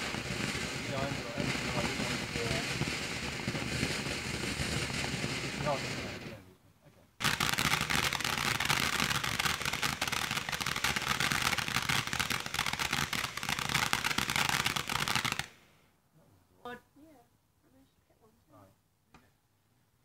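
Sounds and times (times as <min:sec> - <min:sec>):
crackling firework fountain: 0:00.0 - 0:06.5, 0:07.2 - 0:15.8.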